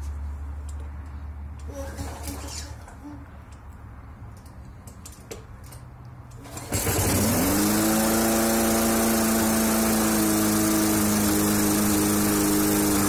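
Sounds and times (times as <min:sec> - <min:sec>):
lawn mower engine starting and running: 0:06.3 - 0:13.0.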